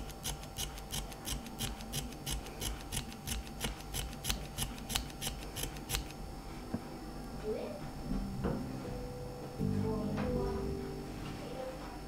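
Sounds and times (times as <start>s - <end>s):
scissors snipping thread: 0.0s - 6.2s.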